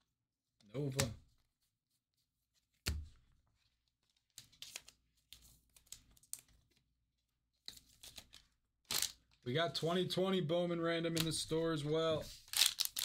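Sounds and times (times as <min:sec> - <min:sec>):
plastic sleeve and wrapper crinkling: 0:07.9 - 0:09.4, 0:12.4 - 0:13.0.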